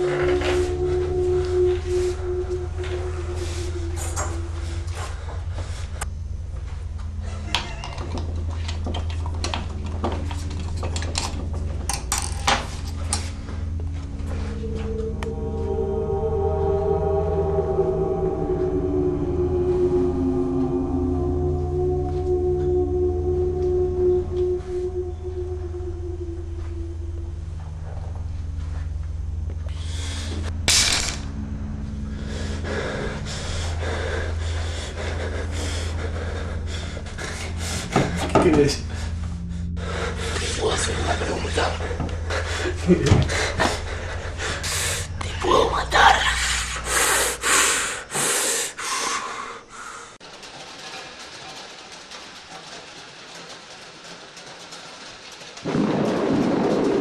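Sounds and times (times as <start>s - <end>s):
steady low hum: 0.0s - 57.0s
person breathing heavily: 32.1s - 41.2s, 41.8s - 45.4s, 46.3s - 50.2s.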